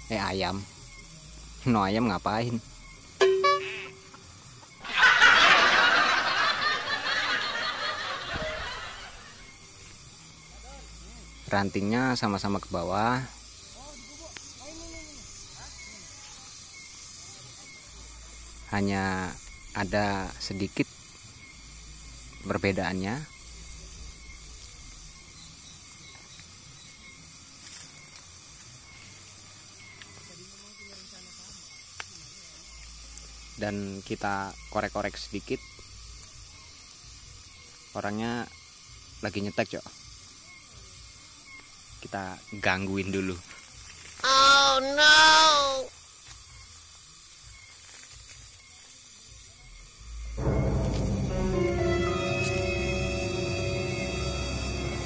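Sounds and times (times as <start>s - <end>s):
rustle: 0.0s - 45.1s, 45.8s - 51.6s
pulsing high-pitched hiss: 0.0s - 55.0s
canned laughter: 4.8s - 9.4s.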